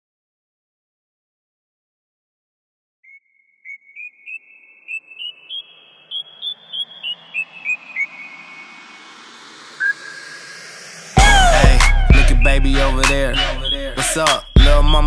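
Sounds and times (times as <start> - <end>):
high whistle-like chirps: 3.1 - 15.0
whoosh: 5.8 - 14.5.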